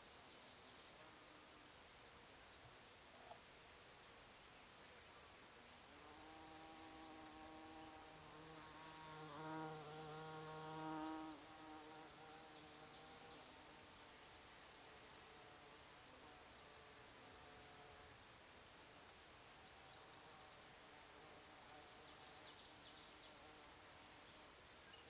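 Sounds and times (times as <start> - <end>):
bumblebee buzzing: 6.1 - 13.5.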